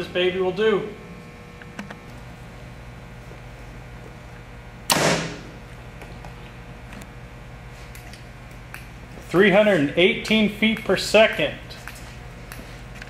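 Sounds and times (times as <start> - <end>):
bow shot sharp report: 4.9 - 5.6.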